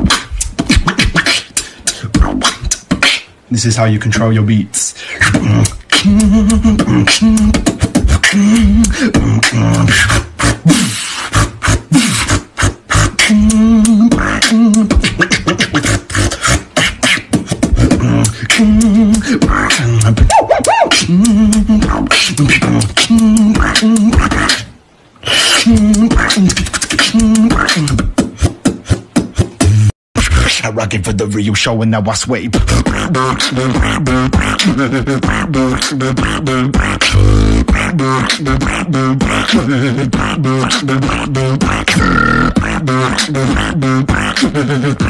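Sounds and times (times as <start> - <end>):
person beatboxing: 0.0 - 3.9, 4.7 - 45.0
hummed bass notes: 5.2 - 10.7, 17.6 - 24.6, 25.6 - 28.1.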